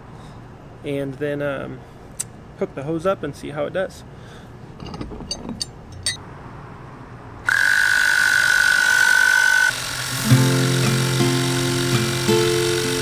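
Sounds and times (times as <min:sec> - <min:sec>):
background music: 0:10.2 - 0:13.0.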